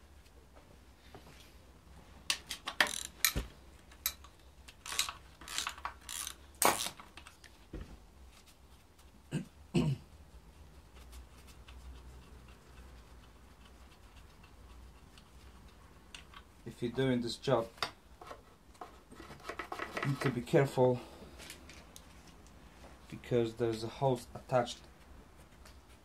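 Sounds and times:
ratchet wrench clicking: 2.8s - 3.4s, 4.8s - 6.9s.

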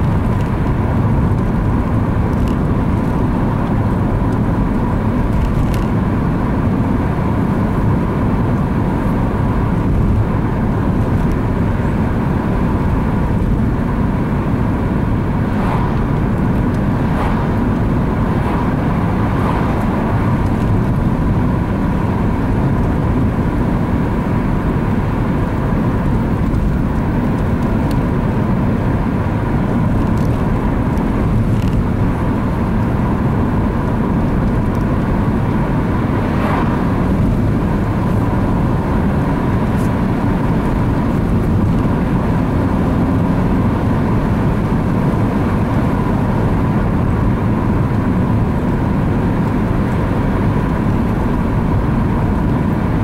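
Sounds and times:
engine and tyre road noise: 0.0s - 53.0s
oncoming car passing: 14.6s - 21.6s, 35.6s - 38.7s.

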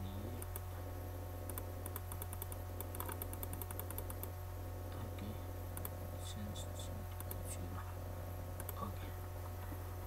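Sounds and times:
steady low hum: 0.0s - 10.0s
computer mouse clicking rapidly: 0.4s - 0.7s, 1.5s - 4.3s, 5.8s - 6.0s, 7.2s - 7.4s, 8.6s - 8.8s.

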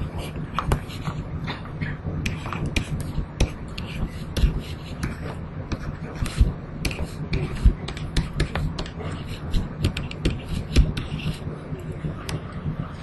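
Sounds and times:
low electrical hum: 0.0s - 13.0s
stylus tapping on tablet: 2.3s - 9.0s.

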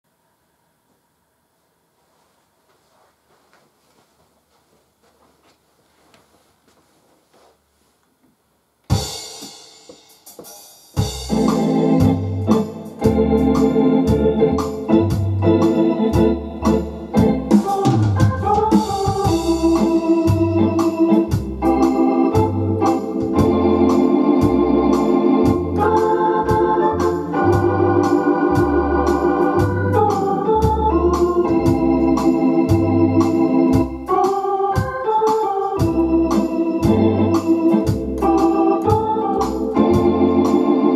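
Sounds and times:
organ playing fox-trot: 11.0s - 40.9s.

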